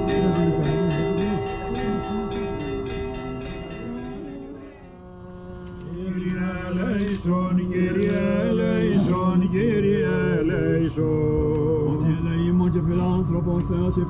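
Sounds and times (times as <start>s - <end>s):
church bells ringing: 0.0s - 5.0s
men chanting over a drone: 0.0s - 14.0s.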